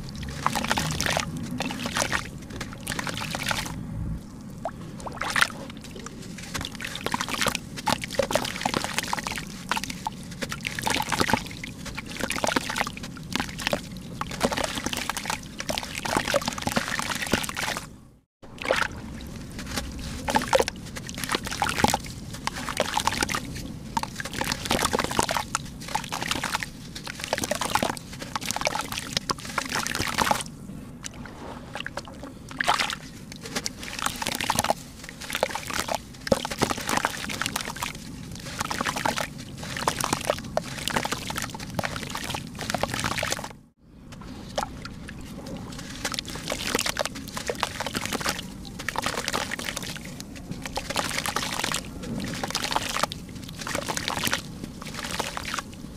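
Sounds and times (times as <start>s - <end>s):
crumbs splashing into water: 0.0s - 3.7s, 5.0s - 17.9s, 18.5s - 30.5s, 31.7s - 43.5s, 44.4s - 55.7s
dirt crumbled by hand: 0.0s - 3.8s, 18.7s - 30.6s, 31.8s - 43.6s, 44.2s - 55.9s.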